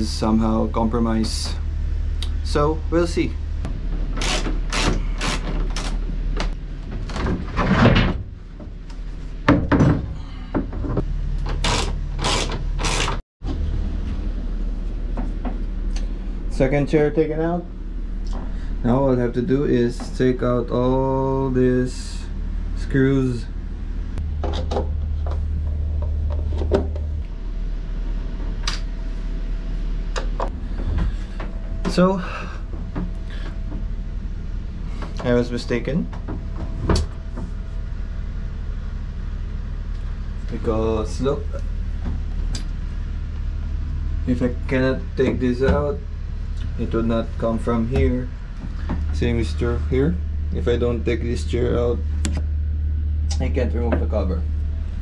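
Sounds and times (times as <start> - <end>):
low steady hum: 0.0 - 55.0
hand tool scraping: 4.2 - 6.0, 11.5 - 13.2.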